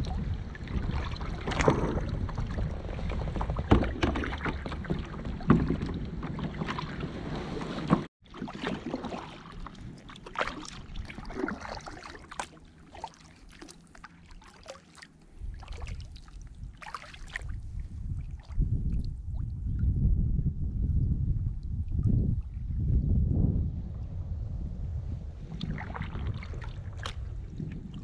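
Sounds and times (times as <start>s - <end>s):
wind rumble on microphone: 0.0s - 8.1s, 9.4s - 12.9s, 15.3s - 28.0s
paddle splashing in water: 0.0s - 19.1s, 25.5s - 28.0s.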